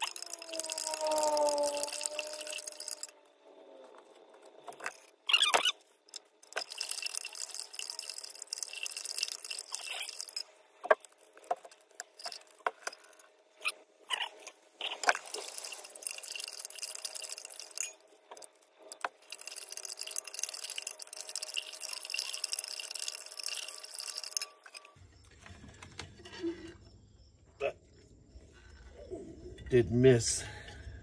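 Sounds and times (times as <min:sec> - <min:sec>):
glass rod clinking on beaker: 0:00.0 - 0:03.1, 0:06.4 - 0:13.2, 0:14.2 - 0:25.0.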